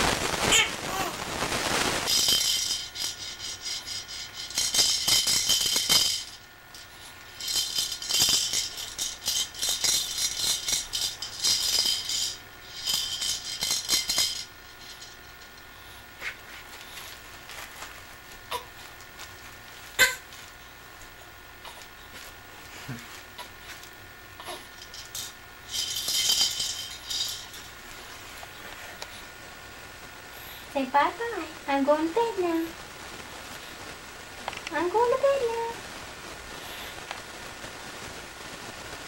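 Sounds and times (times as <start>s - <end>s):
baby's toy rattle shaken: 0.3s - 20.6s, 22.9s - 28.7s, 30.8s - 32.8s, 34.6s - 35.8s.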